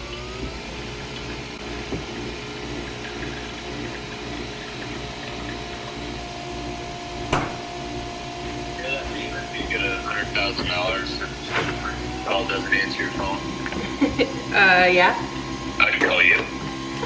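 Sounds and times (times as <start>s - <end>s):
coffee machine pump humming: 0.0s - 17.0s
higher steady tone: 5.0s - 13.6s
sharp knock: 7.3s - 7.6s.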